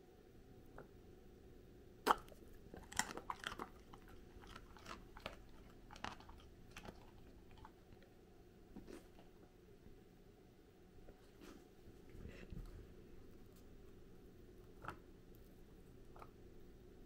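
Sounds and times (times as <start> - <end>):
dog jaws snapping: 2.0 - 7.7
dog crunching carrot: 2.0 - 8.1.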